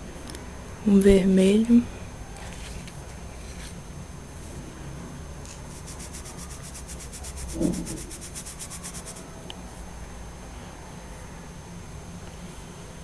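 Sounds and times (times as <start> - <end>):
pencil scratching on paper: 5.7 - 9.2.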